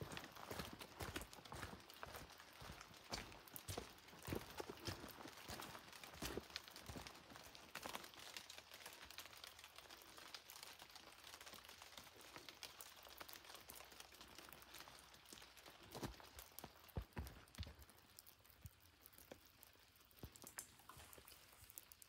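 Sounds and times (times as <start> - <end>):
footsteps on damp dirt trail: 0.0 - 7.9, 15.9 - 17.9.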